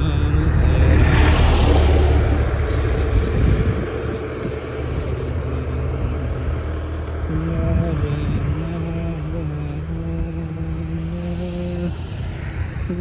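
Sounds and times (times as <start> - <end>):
low traffic rumble: 0.0 - 13.0
vehicle passing close by: 0.0 - 13.0.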